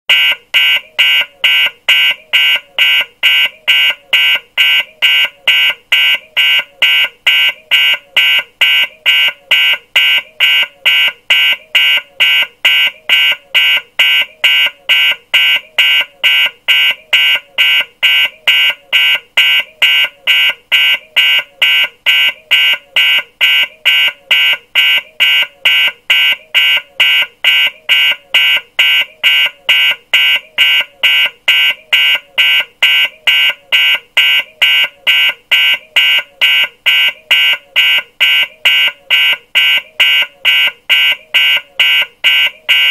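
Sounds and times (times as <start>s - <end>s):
high-pitched alarm beeps: 0.1s - 42.9s.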